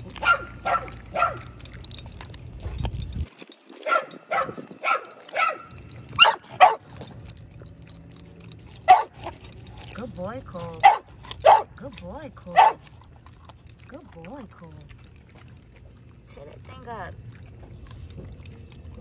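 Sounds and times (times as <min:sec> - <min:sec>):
dog barking: 0:00.2 - 0:01.6, 0:03.8 - 0:06.9, 0:08.8 - 0:09.4, 0:10.8 - 0:11.7, 0:12.6 - 0:12.8.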